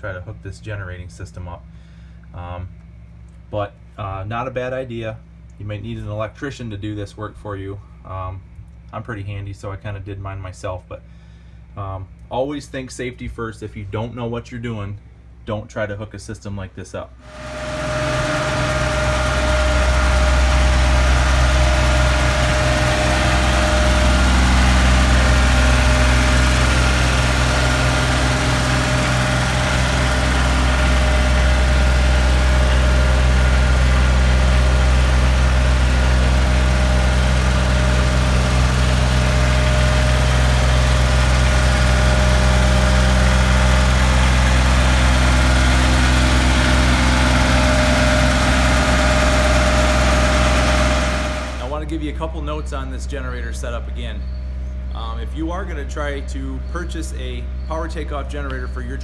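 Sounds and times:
tractor diesel engine running: 17.2s - 59.0s.

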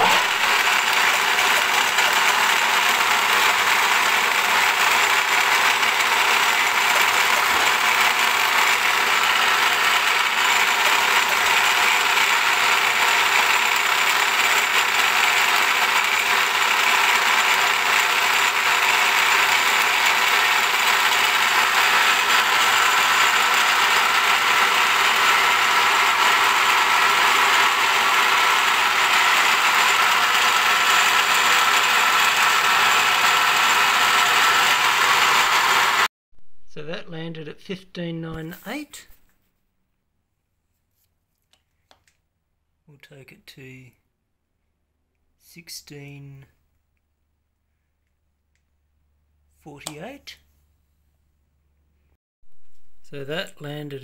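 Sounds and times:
milling machine cutting steel: 0.0s - 36.1s.

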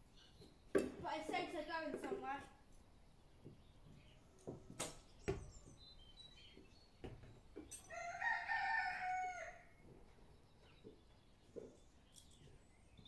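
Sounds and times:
rooster crowing: 7.9s - 9.8s.

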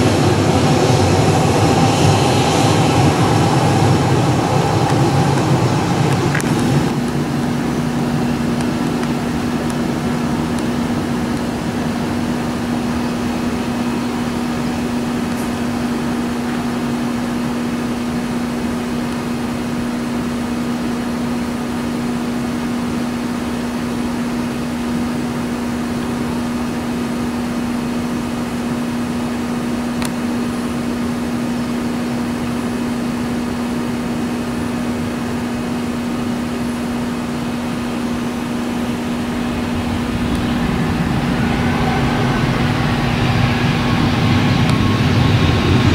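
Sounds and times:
even rushing noise: 0.0s - 17.8s, 36.3s - 45.9s
steady mechanical hum: 0.0s - 45.9s.

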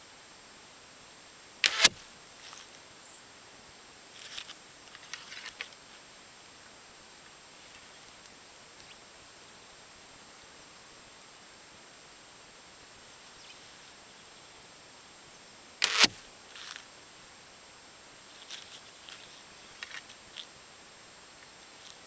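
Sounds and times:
bowstring release crack: 15.8s - 16.8s.

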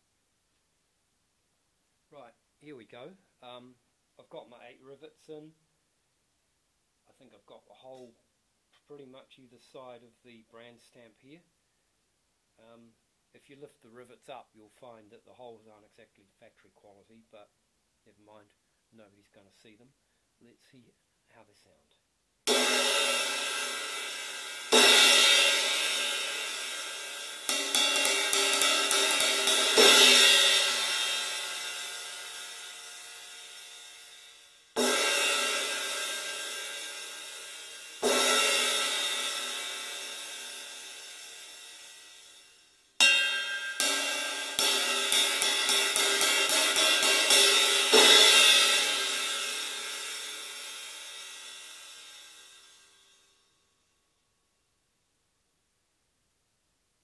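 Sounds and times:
quick ride cymbal taps: 22.5s - 53.0s
riveted cymbal struck and ringing: 22.5s - 53.5s.

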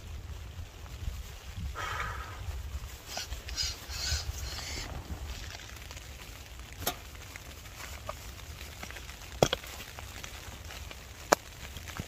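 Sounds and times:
nylon rustling: 0.0s - 12.0s.

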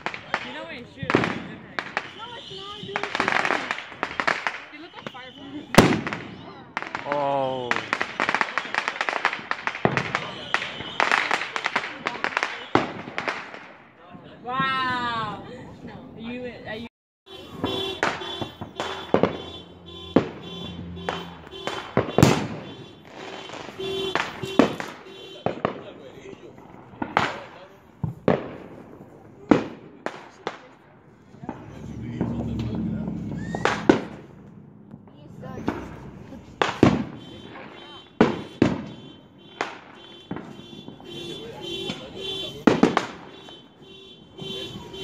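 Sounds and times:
fireworks bangs and pops: 0.0s - 15.0s, 17.3s - 45.0s.

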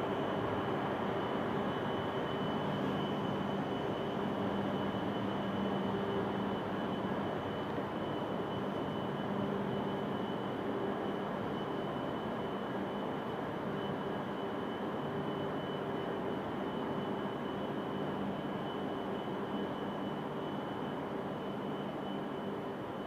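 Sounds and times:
background hum and hiss: 0.0s - 23.0s.

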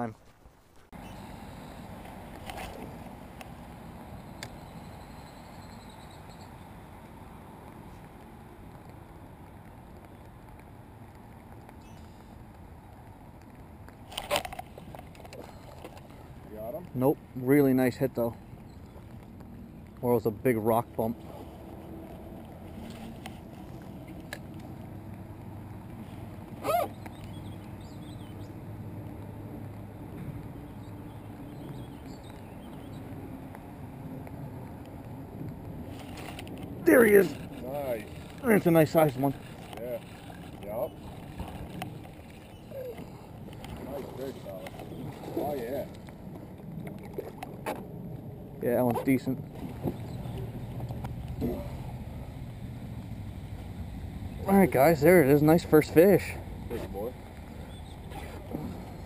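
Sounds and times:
light rain pattering: 0.1s - 59.0s
faint high bird chirps: 4.1s - 6.7s
loud wavering bird call: 26.6s - 28.3s.

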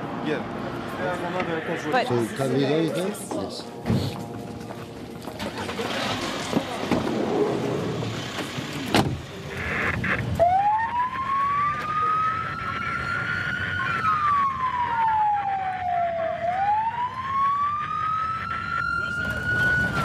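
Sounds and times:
ambulance siren wailing: 9.8s - 20.0s.

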